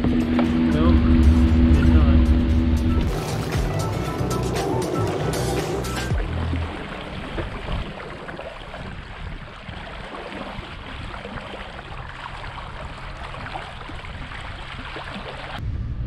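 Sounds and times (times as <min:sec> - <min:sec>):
low rumble: 0:00.0 - 0:09.9, 0:10.6 - 0:16.0
water washing against a kayak: 0:03.1 - 0:15.6.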